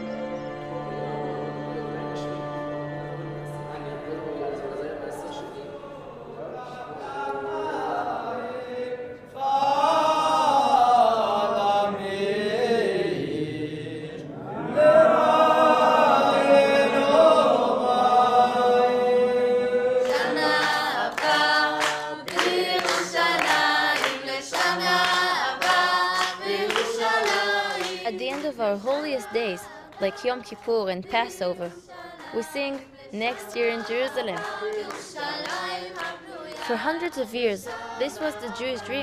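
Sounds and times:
group singing unaccompanied: 0.0 - 39.0
hands clapping a steady beat: 20.0 - 38.5.

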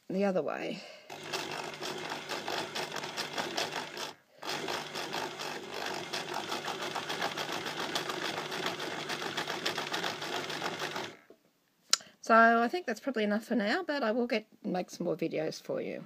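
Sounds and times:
sewing machine stitching: 1.1 - 11.3.

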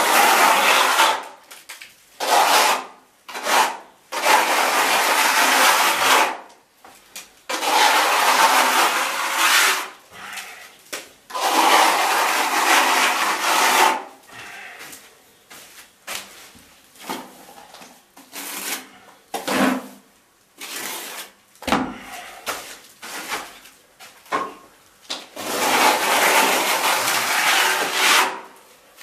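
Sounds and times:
trowel scraping render on wall: 0.0 - 1.4, 2.2 - 6.5, 7.5 - 10.6, 11.3 - 14.2, 18.2 - 23.8, 25.3 - 28.6.

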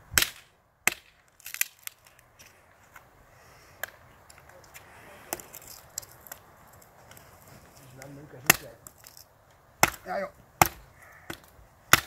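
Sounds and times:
sharp clicks and cracks: 0.2 - 2.3.

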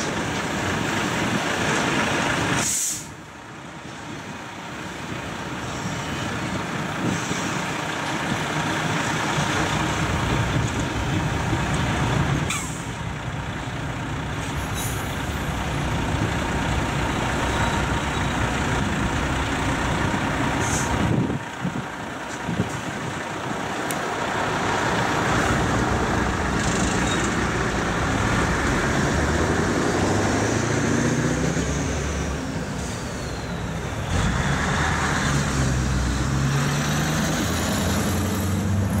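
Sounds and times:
lorries pulling away: 0.0 - 39.0
lorry diesel engine running: 0.0 - 39.0
air brakes hissing: 2.6 - 3.2, 12.5 - 13.0, 14.4 - 15.3, 20.6 - 21.1, 32.6 - 33.9
freight wagons rumbling and clattering: 3.9 - 30.0.

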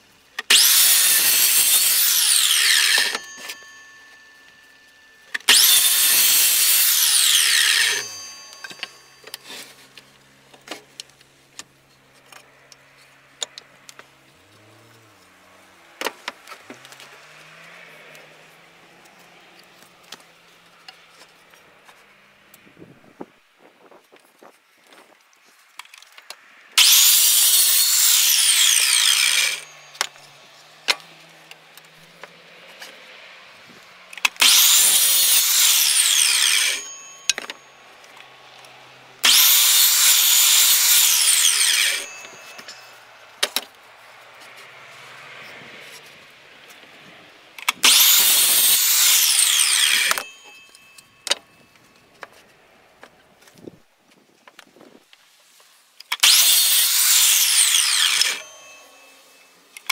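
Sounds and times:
miter saw cutting wood: 0.0 - 10.8, 26.7 - 52.5, 56.1 - 59.9.

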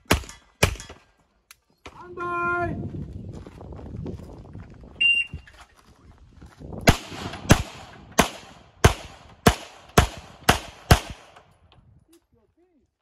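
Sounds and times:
pistol shots: 6.9 - 11.5.

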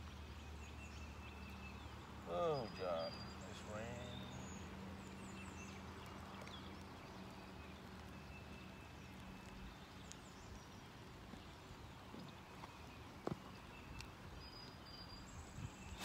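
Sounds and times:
light rain falling: 0.0 - 15.3
faint bird chirps: 0.4 - 10.8.

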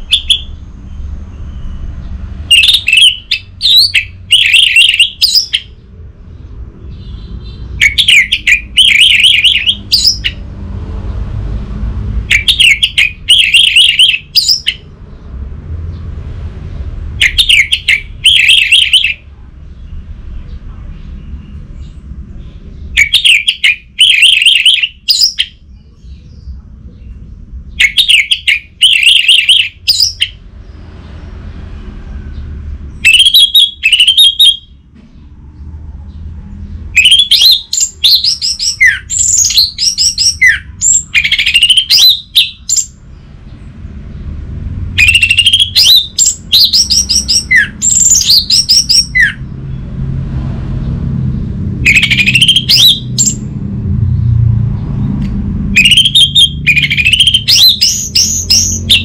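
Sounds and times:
thrush singing whistled phrases: 0.0 - 1.9, 2.5 - 5.8, 7.0 - 10.4, 12.3 - 14.8, 17.2 - 19.2, 22.9 - 25.6, 27.8 - 30.4, 33.0 - 34.8, 36.9 - 43.0, 45.0 - 49.4, 51.8 - 53.4, 55.8 - 59.0.

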